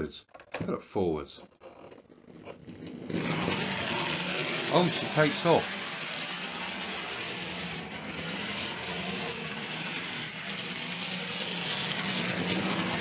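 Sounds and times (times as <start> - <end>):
wheel noise on rails: 2.8 - 13.0
model train motor hum: 3.0 - 13.0.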